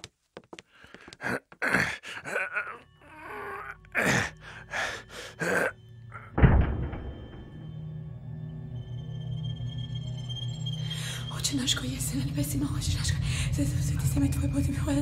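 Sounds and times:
person gasping and groaning: 1.1 - 5.8.

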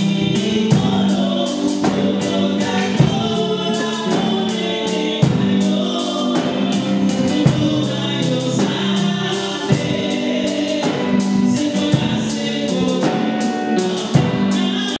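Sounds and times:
regular beat: 0.0 - 15.0
women singing gospel song: 0.0 - 15.0.

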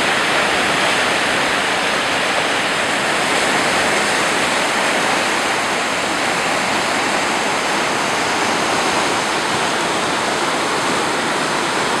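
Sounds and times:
turbulent water rushing: 0.0 - 12.0.

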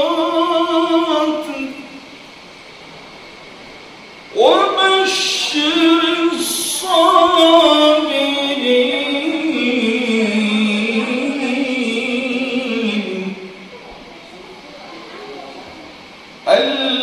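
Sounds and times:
man chanting melodically: 0.0 - 2.0, 4.3 - 13.6, 16.4 - 17.0.

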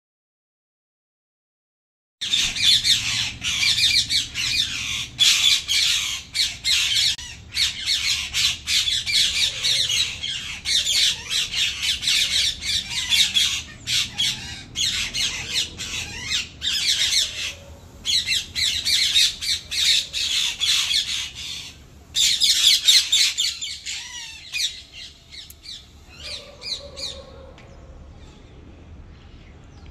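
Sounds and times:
parakeets squawking: 2.2 - 27.5.

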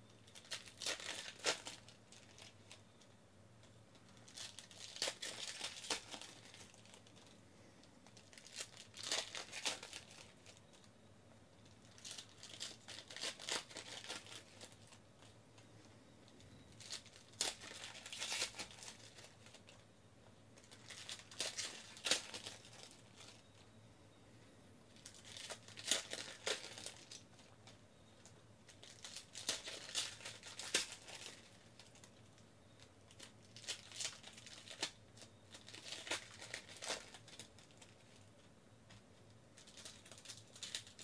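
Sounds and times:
foil wrappers tearing and crinkling: 0.2 - 2.8, 4.1 - 7.3, 8.0 - 10.8, 11.8 - 15.0, 16.8 - 19.8, 20.6 - 23.4, 25.0 - 27.5, 28.7 - 32.2, 33.1 - 38.1, 39.6 - 41.0.

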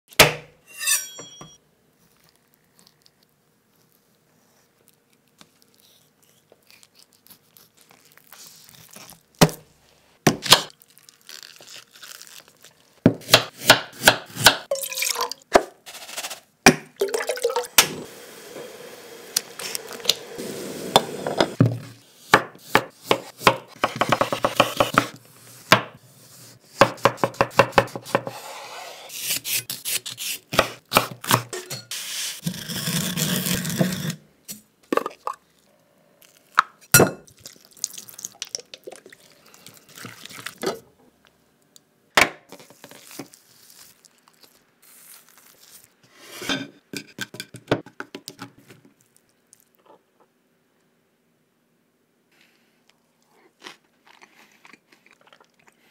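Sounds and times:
knife chopping on wooden board: 0.2 - 0.5, 21.6 - 25.1, 26.8 - 28.3.

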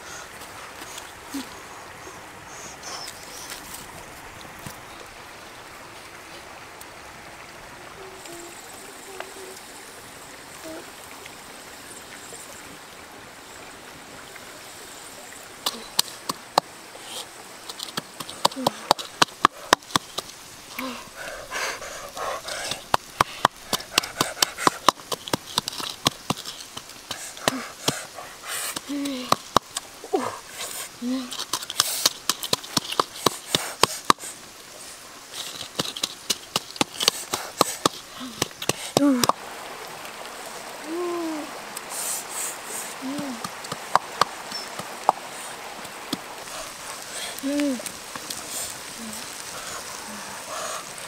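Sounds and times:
wood fire crackling: 42.8 - 51.0.

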